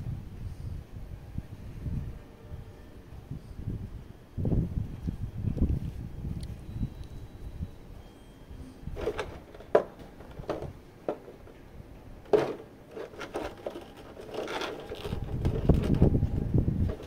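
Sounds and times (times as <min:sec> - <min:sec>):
packaging rustling: 0:12.3 - 0:16.0.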